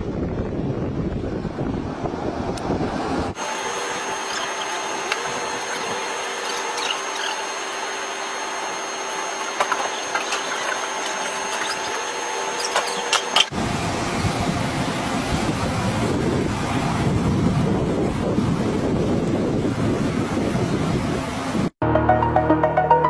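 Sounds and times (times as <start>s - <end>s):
wind buffeting microphone: 0.0s - 3.4s, 13.5s - 21.7s
electric machine whine: 1.6s - 21.8s.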